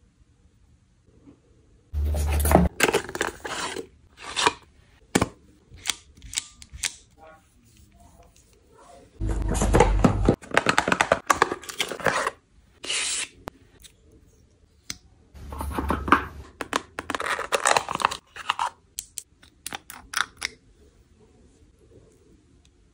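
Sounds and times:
packaging rustling and scraping: 2.0s - 4.7s, 9.3s - 13.4s, 15.4s - 18.8s.

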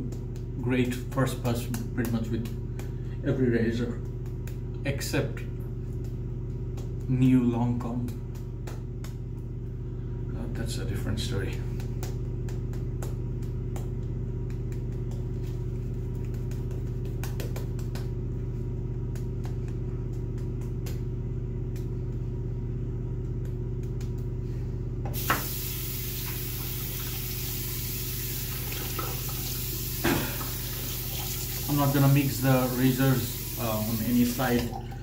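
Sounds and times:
steady low hum: 0.0s - 35.0s
tap turning on: 25.1s - 27.2s
shaving brush lathering face: 25.2s - 34.7s
water running into sink: 25.2s - 35.0s.

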